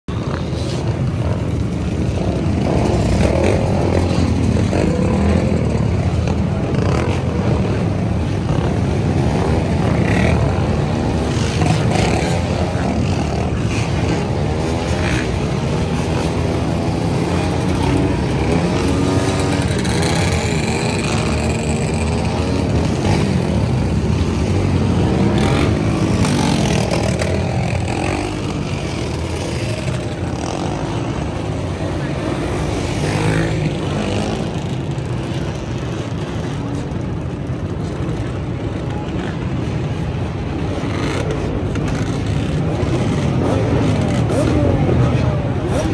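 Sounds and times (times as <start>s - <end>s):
dirt bike and atv engines revving: 0.1s - 45.9s.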